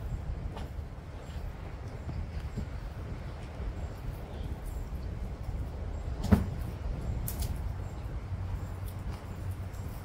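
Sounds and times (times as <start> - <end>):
tortoises feeding on grass: 0.0 - 10.0.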